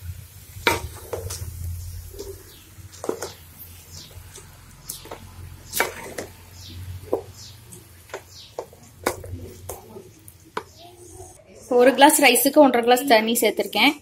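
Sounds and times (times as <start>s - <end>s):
wooden spoon scraping metal pot: 4.0s - 7.5s.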